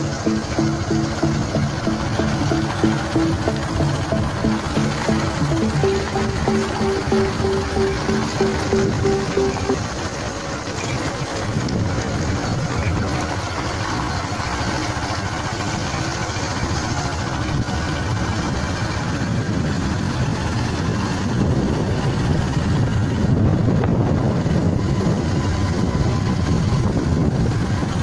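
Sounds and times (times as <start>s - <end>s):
vehicle engine and road noise: 0.0s - 28.0s
wind rumble: 17.6s - 28.0s.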